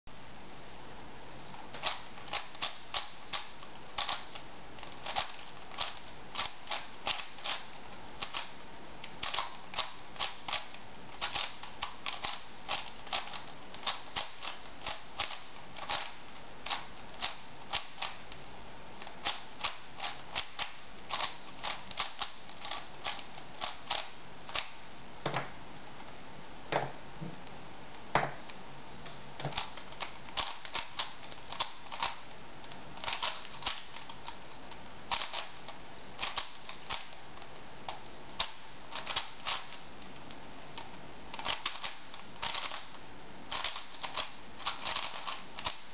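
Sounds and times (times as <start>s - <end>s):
puzzle cube clicking: 1.8s - 8.5s, 9.1s - 18.2s, 19.2s - 24.7s, 29.5s - 32.3s, 33.0s - 39.8s, 40.8s - 42.9s, 43.5s - 45.8s.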